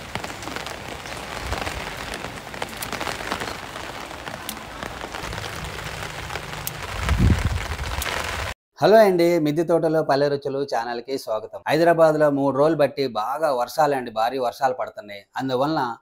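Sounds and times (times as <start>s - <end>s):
raindrop ticks: 0.0s - 8.6s
steady rain: 0.0s - 8.6s.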